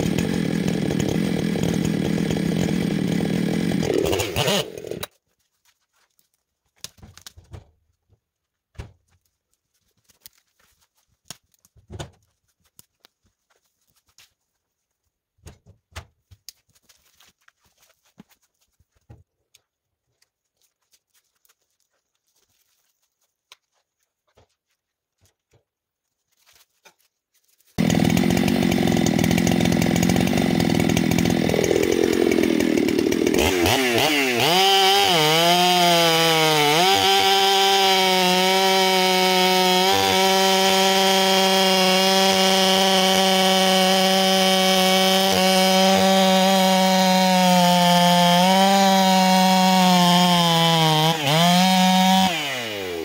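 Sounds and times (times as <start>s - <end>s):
chainsaw sawing through log: 0.0s - 5.1s, 27.8s - 53.0s.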